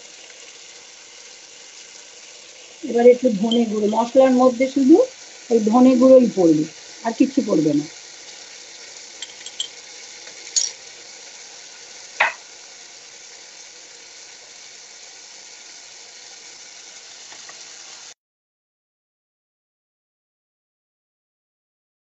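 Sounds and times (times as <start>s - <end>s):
vegetables sizzling in a pan: 0.0s - 18.2s
metal spoon clinking: 9.2s - 9.8s, 10.4s - 10.8s
sharp knock: 12.2s - 12.4s.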